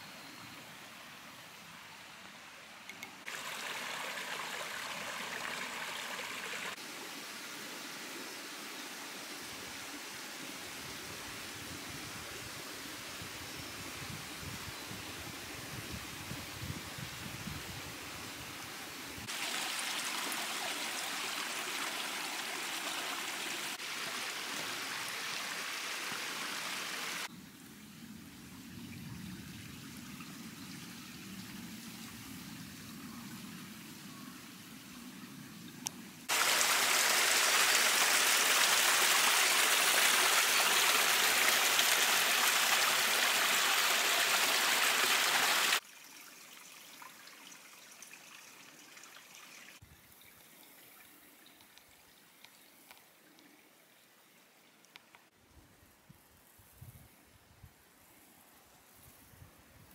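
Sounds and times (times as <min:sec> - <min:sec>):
stream running over rocks: 0:00.8 - 0:12.0, 0:19.2 - 0:27.3, 0:36.2 - 0:53.2.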